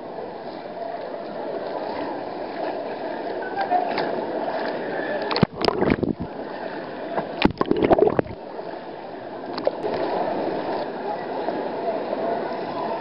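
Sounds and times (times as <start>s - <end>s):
loud splashing: 7.4s - 8.4s.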